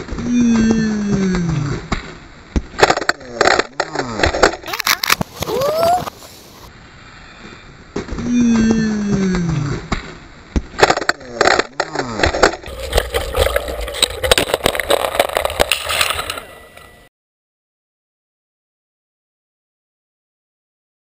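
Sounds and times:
bike rattling down rocky trail: 12.3 - 16.8.

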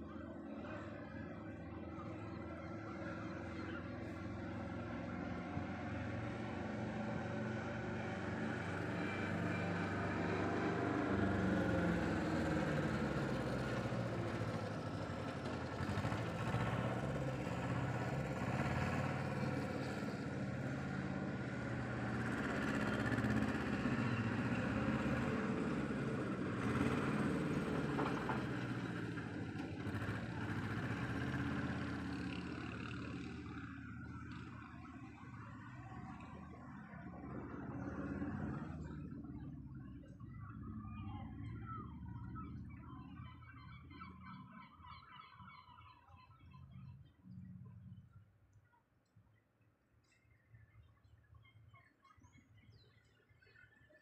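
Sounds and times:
passing vehicle engines: 0.0 - 48.1.

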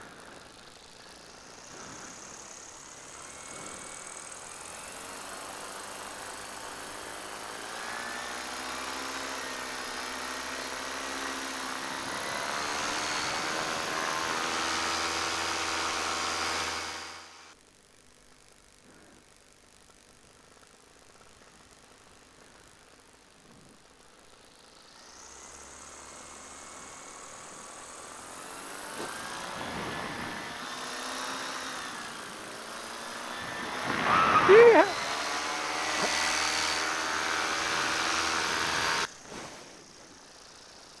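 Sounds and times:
paramotor engine and propeller: 0.0 - 17.6, 24.3 - 41.0.

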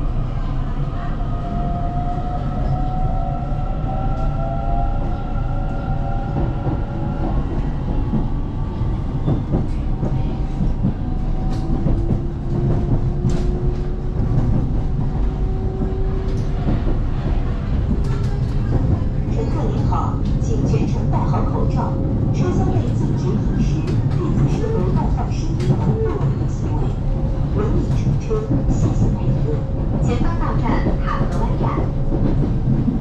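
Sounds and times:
train wheels rumbling on rail: 0.0 - 33.0.

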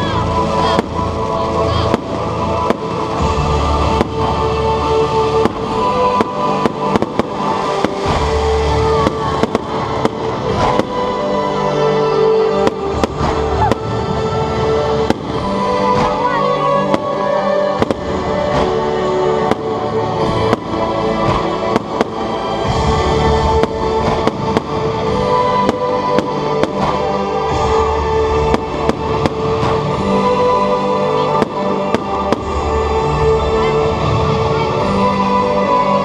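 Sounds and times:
fireworks bangs and crackles: 0.0 - 36.0
music with long held notes: 0.0 - 36.0.

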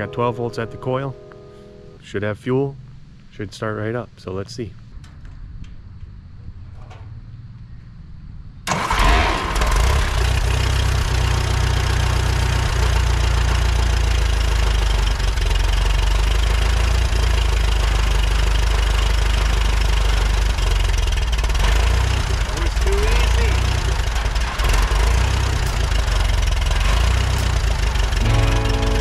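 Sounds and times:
tractor engine starting and idling: 8.6 - 29.0.

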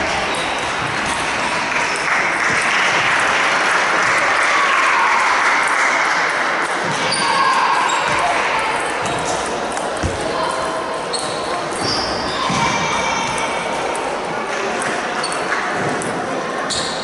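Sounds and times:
applause in a large hall: 1.5 - 6.6.

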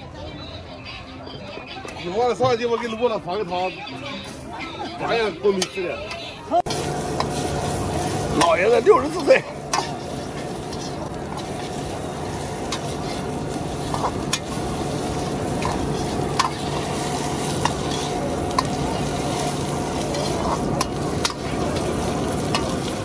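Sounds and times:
oil sizzling in a pan: 6.6 - 23.0
metal spatula scraping pan: 8.3 - 11.9, 12.5 - 14.6, 15.5 - 21.9.

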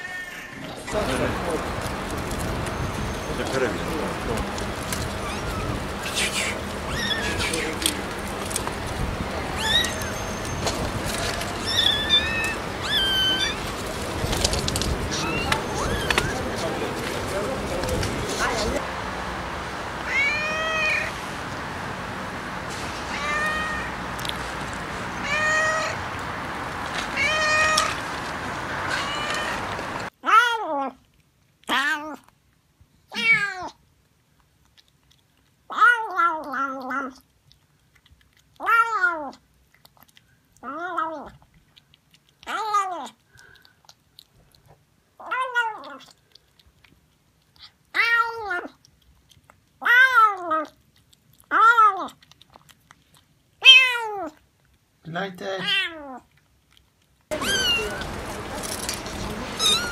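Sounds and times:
cat meowing: 0.0 - 1.0, 5.0 - 6.2, 6.9 - 7.9, 9.5 - 13.7, 15.0 - 16.5, 20.0 - 21.1, 23.0 - 24.0, 25.2 - 26.0, 27.1 - 28.0, 28.8 - 30.9, 33.1 - 33.8, 35.7 - 37.2, 38.6 - 39.4, 47.9 - 48.8, 49.8 - 50.7, 51.5 - 52.2, 53.6 - 54.4, 55.6 - 56.2, 57.3 - 58.8, 59.6 - 59.9
faint chewing clicks: 24.2 - 24.8, 33.8 - 55.0, 55.8 - 59.9.

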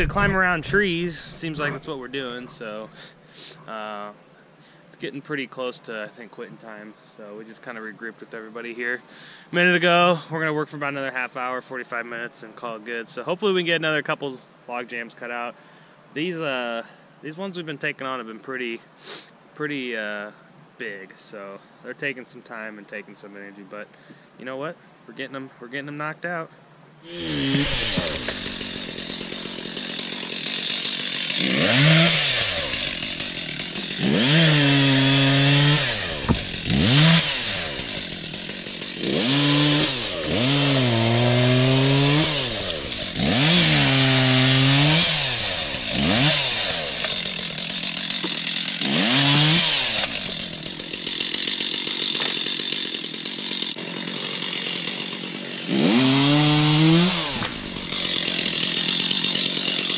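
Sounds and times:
chainsaw revving and cutting: 0.0 - 2.0, 27.1 - 59.9.

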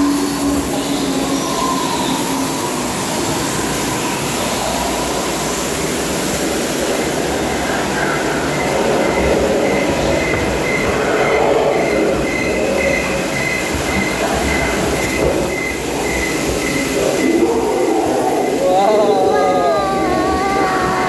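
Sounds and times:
ride vehicle rumbling on track: 0.0 - 21.0.

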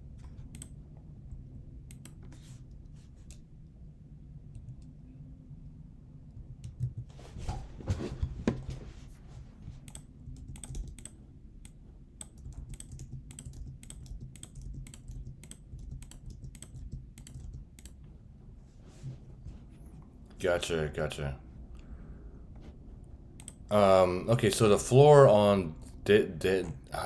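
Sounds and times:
low steady hum: 0.0 - 27.0
computer keyboard typing: 6.6 - 7.1, 9.9 - 18.0.

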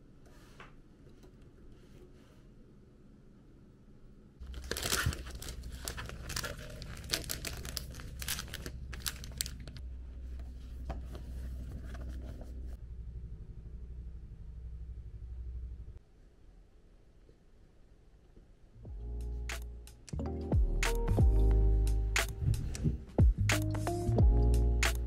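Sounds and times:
plastic packaging crinkling and tearing: 4.4 - 9.8.

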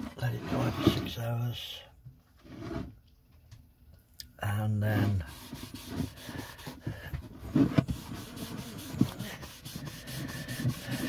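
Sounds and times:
cloth rubbing on wood: 4.9 - 6.8, 7.4 - 11.0.

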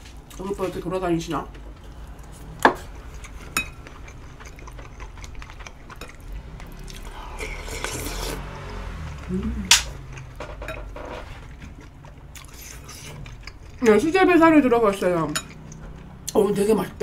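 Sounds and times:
person chewing: 1.4 - 10.4, 11.0 - 14.3, 15.2 - 16.4.

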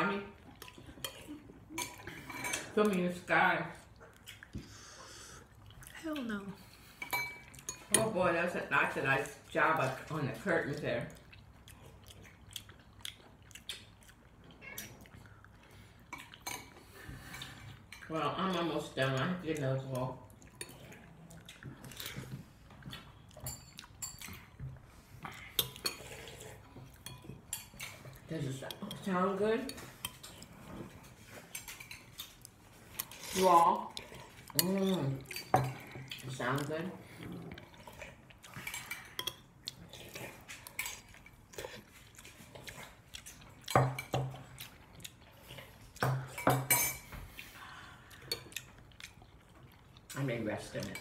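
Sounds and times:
chewing: 0.3 - 3.0, 3.7 - 8.0, 9.2 - 46.4, 47.0 - 51.0
cutlery clinking against a bowl: 0.6 - 3.0, 7.0 - 8.2, 22.9 - 24.6, 38.6 - 44.6, 46.0 - 47.2
mouth sounds of eating: 9.2 - 27.1, 32.2 - 46.4.

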